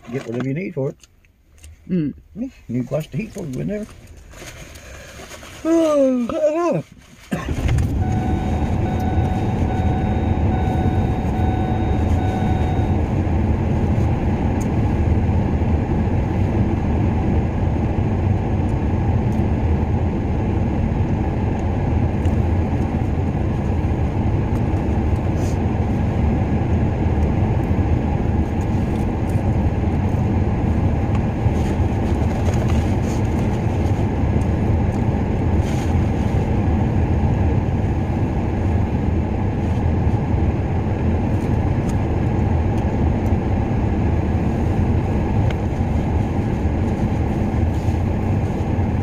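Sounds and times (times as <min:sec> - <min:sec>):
heater fan blowing: 0:05.0 - 0:49.0
vehicle engine running: 0:07.4 - 0:49.0
faint high whine: 0:07.9 - 0:13.2.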